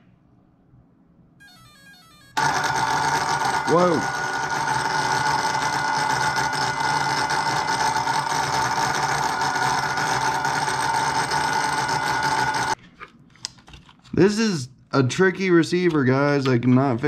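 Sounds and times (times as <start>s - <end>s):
electric motor whine with gear noise: 2.0s - 12.8s.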